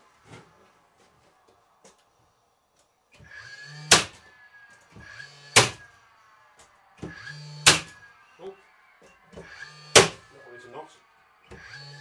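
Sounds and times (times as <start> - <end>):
nailer motor whir: 3.1 - 8.4, 9.0 - 10.3, 11.4 - 12.0
nail driven sharp crack: 3.9 - 4.2, 5.6 - 5.8, 7.6 - 8.0, 9.9 - 10.2.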